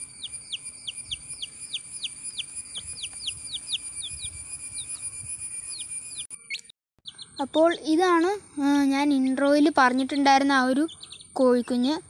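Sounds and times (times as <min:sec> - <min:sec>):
steady high-pitched tone: 0:00.0 - 0:06.5
chick peeping: 0:00.0 - 0:08.2, 0:09.1 - 0:11.9.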